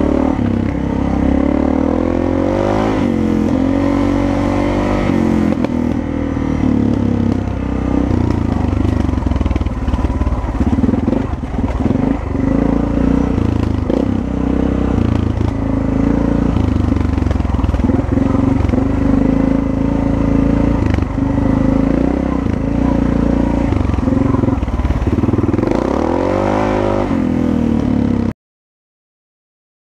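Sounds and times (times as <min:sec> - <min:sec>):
dirt bike engine revving: 0:00.0 - 0:28.3.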